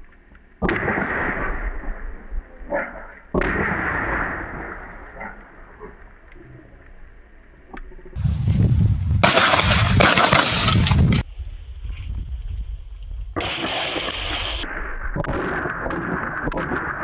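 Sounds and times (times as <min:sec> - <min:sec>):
gunshots with rolling echo: 0:00.6 - 0:05.7, 0:09.2 - 0:11.2, 0:13.4 - 0:17.0.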